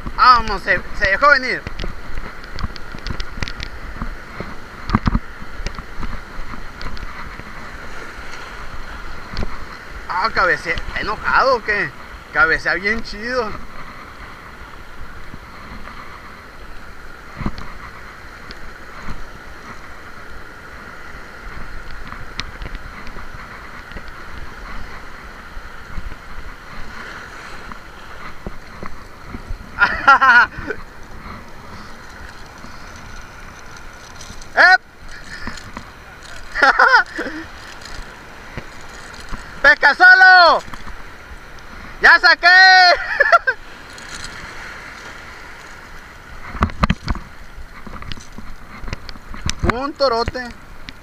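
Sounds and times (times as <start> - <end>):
wind buffeting microphone: 0.0 - 42.1
surf washing over rocks: 0.0 - 51.0
faint clicks: 1.6 - 7.6, 30.7 - 39.6, 43.8 - 51.0.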